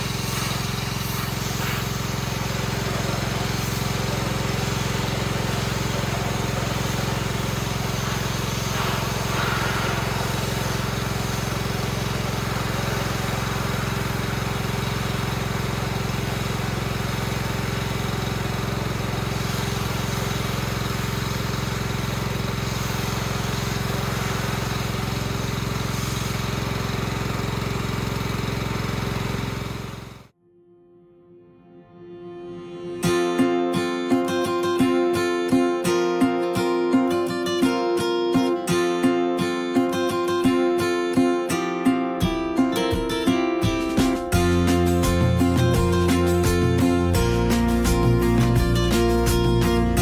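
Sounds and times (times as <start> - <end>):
water jet hissing: 0.0 - 30.2
small engine running: 0.0 - 30.3, 42.2 - 50.0.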